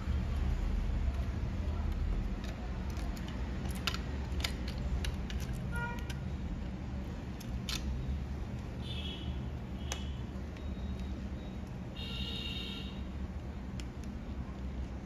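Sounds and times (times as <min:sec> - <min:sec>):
small tools clicking: 0:00.4 - 0:06.3, 0:07.3 - 0:08.7.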